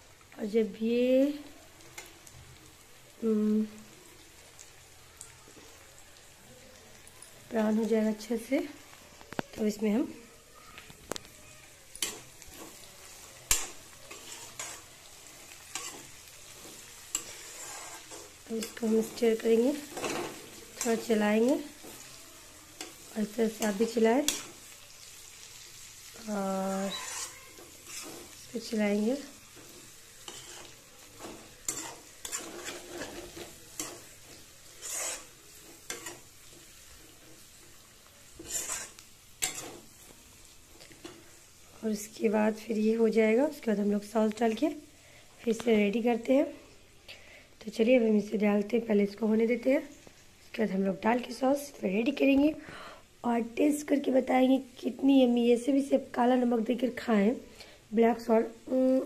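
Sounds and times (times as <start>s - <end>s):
vegetables sizzling in hot oil: 0.0s - 59.0s
metal spoon scraping pan: 11.9s - 22.1s, 22.8s - 24.6s, 26.7s - 36.8s, 38.4s - 39.9s.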